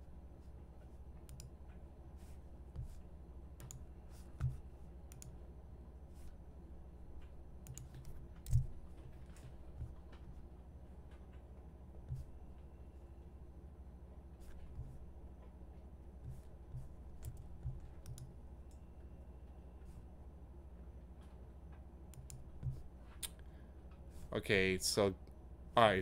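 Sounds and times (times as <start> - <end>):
steady low hum: 0.0 - 26.0
computer mouse clicks: 1.2 - 1.6, 3.6 - 5.4, 7.2 - 9.5, 17.2 - 18.8, 22.1 - 23.4.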